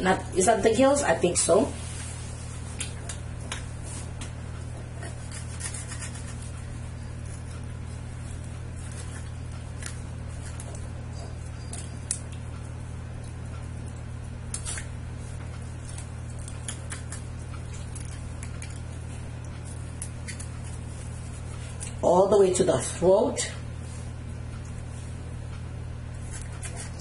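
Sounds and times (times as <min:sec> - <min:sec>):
steady low hum: 0:00.0 - 0:27.0
knife cutting raw fish: 0:05.0 - 0:06.5.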